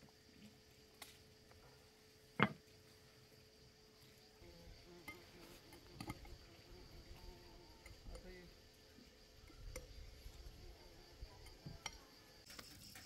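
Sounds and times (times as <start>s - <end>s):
insect buzzing faintly: 0.0s - 13.0s.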